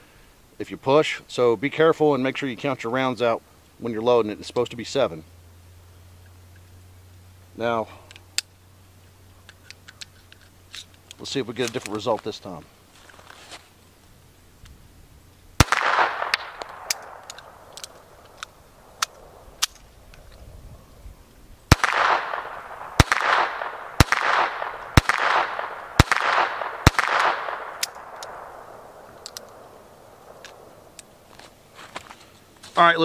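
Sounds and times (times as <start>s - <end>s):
pistol shots with echo: 15.6s - 19.3s, 21.7s - 30.8s
light pistol clicks: 15.7s - 20.3s, 21.7s - 31.1s.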